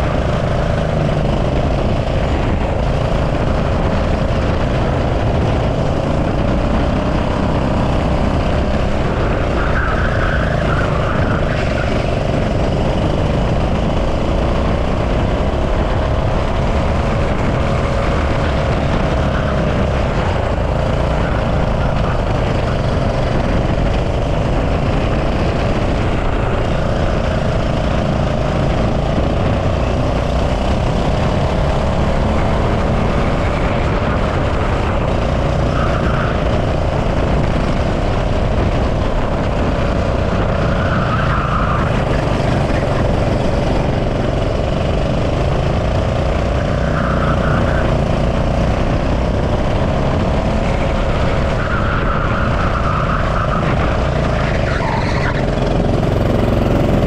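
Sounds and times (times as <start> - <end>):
go-kart engine racing: 0.0 - 57.0
wind rumble on camera: 0.0 - 57.0.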